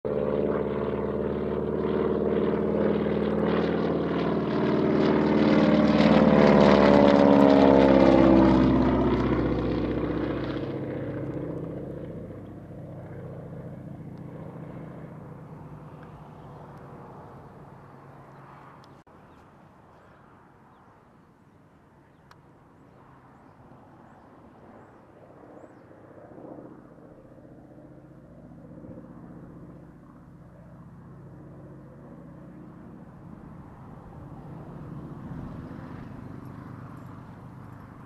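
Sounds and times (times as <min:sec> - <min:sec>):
propeller plane droning overhead: 0:00.0 - 0:38.0.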